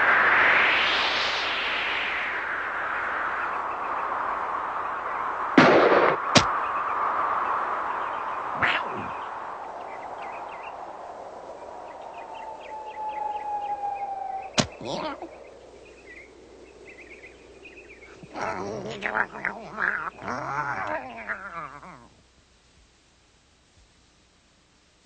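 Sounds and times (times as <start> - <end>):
sharp hit: 5.6 - 6.5
light chirps: 6.3 - 22.1
falling whistle: 12.3 - 14.8
wavering warbling sound: 18.1 - 22.0.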